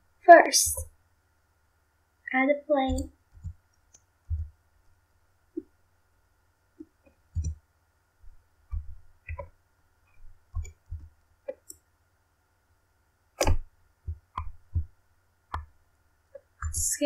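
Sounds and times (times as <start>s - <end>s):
computer mouse and keyboard clicks: 6.8s - 7.6s, 8.7s - 9.5s, 10.1s - 11.8s, 13.4s - 14.9s.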